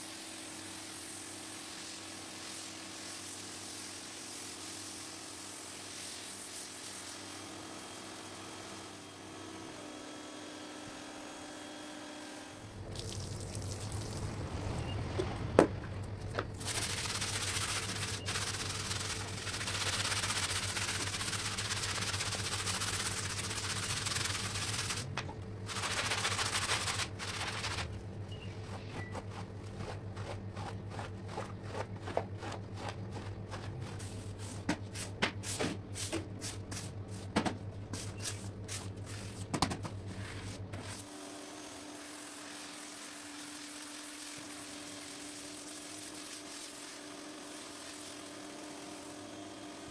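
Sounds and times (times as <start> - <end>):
brushes scrubbing wet rug: 16.6 - 25.1, 25.7 - 27.9, 28.7 - 37.2, 42.0 - 49.1.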